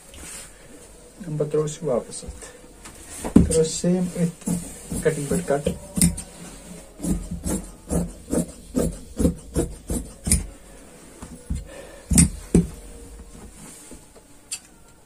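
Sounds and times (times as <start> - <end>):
shears snipping fabric: 4.2 - 6.3, 7.0 - 10.5.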